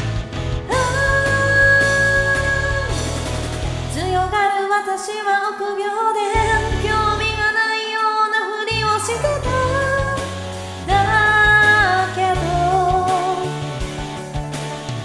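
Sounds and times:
instrumental backing: 0.0s - 4.4s, 8.7s - 15.0s.

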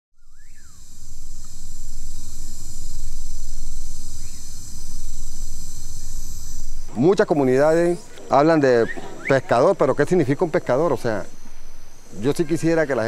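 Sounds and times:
high-pitched insect chorus: 0.2s - 13.0s
rising-and-falling bird call: 6.9s - 10.0s.

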